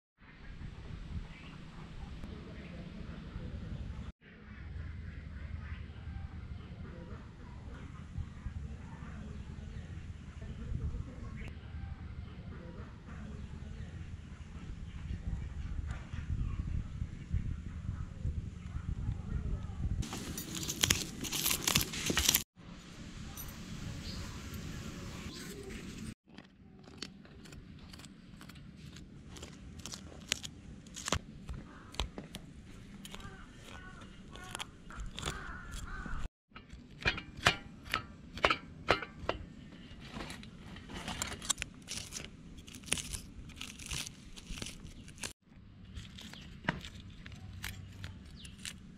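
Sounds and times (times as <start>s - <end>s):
knife scraping fish scales: 32.8s - 38.6s, 41.1s - 45.4s.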